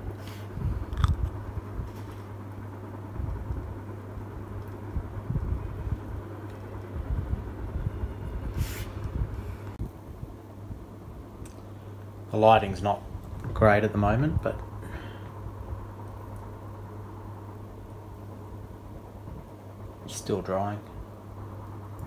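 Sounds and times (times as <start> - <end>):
steady low hum: 0.0 - 22.0
brief hiss: 8.5 - 9.1.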